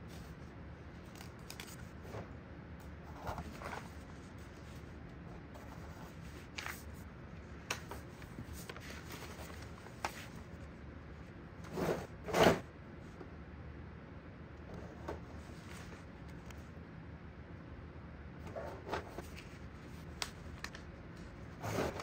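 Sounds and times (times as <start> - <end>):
paper rustling: 0.9 - 2.3, 3.1 - 4.9, 5.6 - 7.0, 7.7 - 10.5, 18.5 - 22.0.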